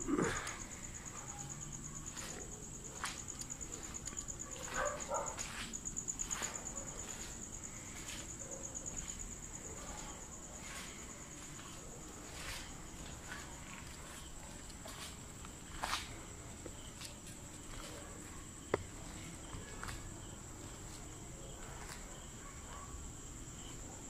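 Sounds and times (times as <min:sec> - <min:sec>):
crickets chirring: 0:00.0 - 0:24.0
footsteps on concrete: 0:02.0 - 0:18.0.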